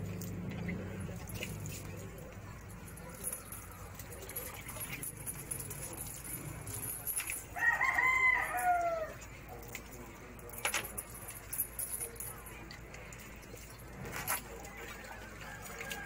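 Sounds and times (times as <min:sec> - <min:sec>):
rooster crowing: 0:07.6 - 0:09.2.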